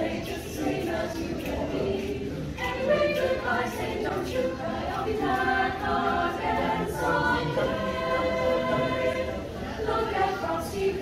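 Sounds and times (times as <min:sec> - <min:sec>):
mixed-voice choir singing: 0:00.0 - 0:11.0.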